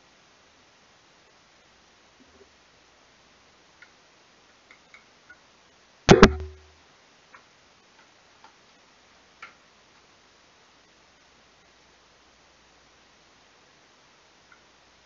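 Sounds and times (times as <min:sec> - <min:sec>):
faint small clicks: 0:03.8 - 0:05.4, 0:07.3 - 0:08.6, 0:09.4 - 0:09.6, 0:14.5 - 0:14.7
knocks close to microphone: 0:06.1 - 0:06.6
low thump: 0:06.1 - 0:06.6.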